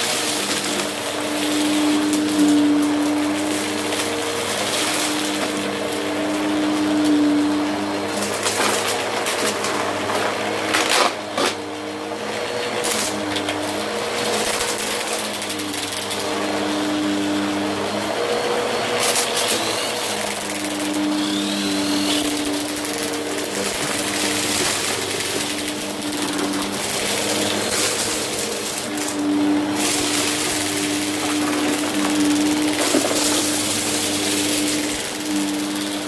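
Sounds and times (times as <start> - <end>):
vacuum cleaner motor humming: 0.0 - 36.0
debris crunching: 20.1 - 36.0.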